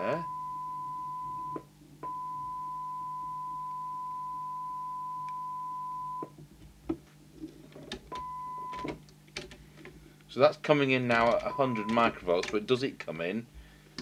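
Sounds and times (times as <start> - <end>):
test tone from radio speaker: 0.0 - 6.3.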